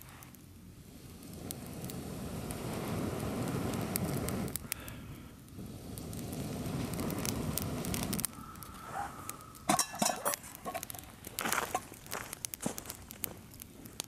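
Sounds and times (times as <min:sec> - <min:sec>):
low rushing noise: 0:00.0 - 0:11.2
fire crackling and popping: 0:00.0 - 0:14.0.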